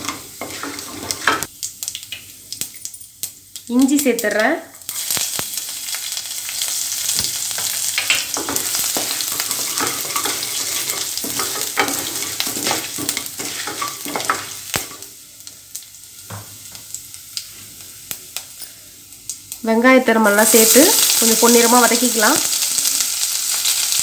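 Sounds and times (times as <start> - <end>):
wooden spoon scraping metal pot: 0.0 - 1.5, 8.4 - 14.5
seeds sizzling and popping in oil: 0.0 - 24.0.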